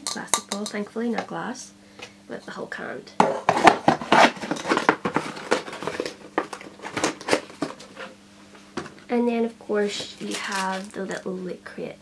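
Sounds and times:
plastic scraping against cardboard: 3.4s - 8.2s.

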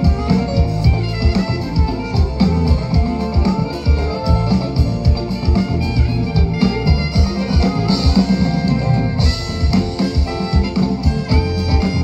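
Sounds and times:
drum kit beat: 0.0s - 12.0s
live jazz band playing: 0.0s - 12.0s
saxophone: 0.0s - 12.0s.

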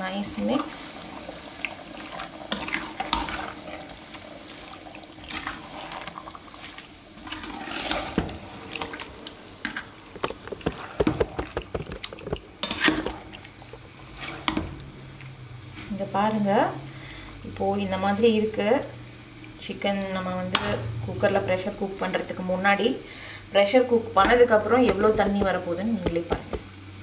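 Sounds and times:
wet mixing sounds: 0.1s - 22.9s, 23.7s - 26.8s
ladle scraping metal pot: 9.6s - 14.7s.

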